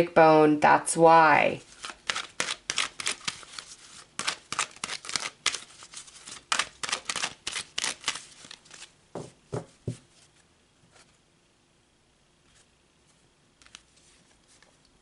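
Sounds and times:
cards being shuffled: 0:01.6 - 0:10.1, 0:12.5 - 0:15.0.

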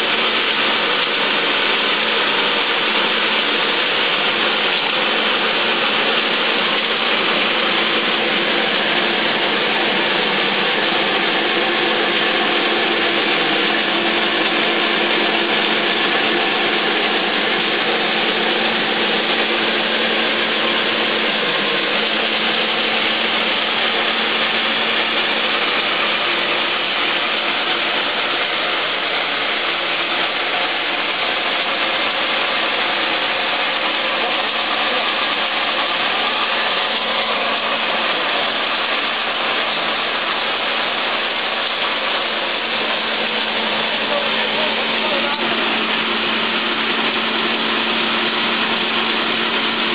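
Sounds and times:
corn husking machine clatter: 0:00.0 - 0:49.9.

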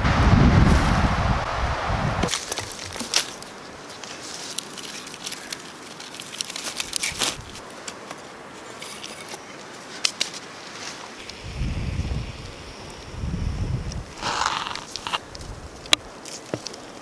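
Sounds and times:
pine needles rustling: 0:02.2 - 0:11.5, 0:13.8 - 0:17.0.

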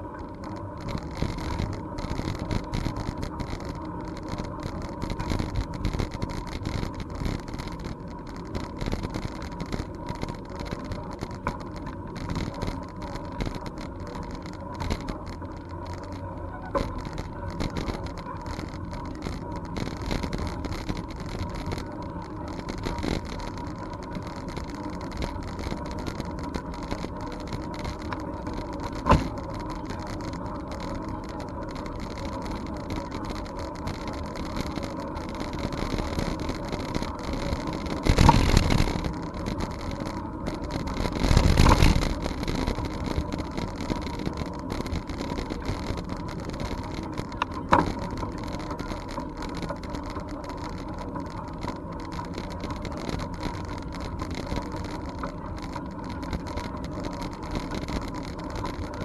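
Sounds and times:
bicycle tyre noise: 0:00.0 - 0:59.0
wind noise: 0:35.3 - 0:40.0, 0:40.9 - 0:45.9.

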